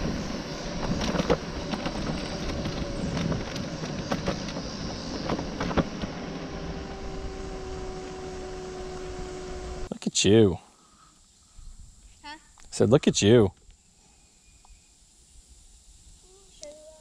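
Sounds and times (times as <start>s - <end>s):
scooter clicks and rattles over bumps: 0.0s - 6.4s
wind noise on microphone: 0.0s - 9.9s.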